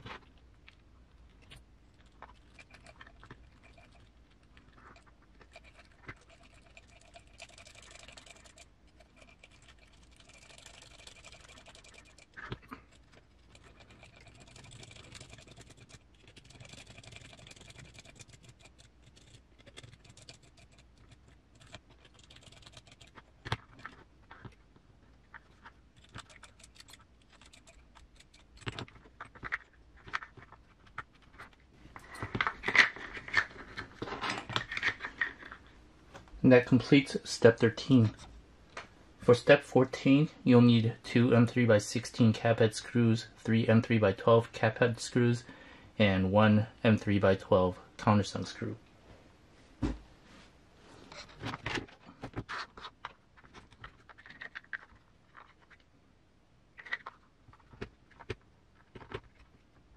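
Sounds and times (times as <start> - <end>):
small parts clicking and scratching: 0.0 - 35.8, 51.0 - 55.9, 56.7 - 59.9.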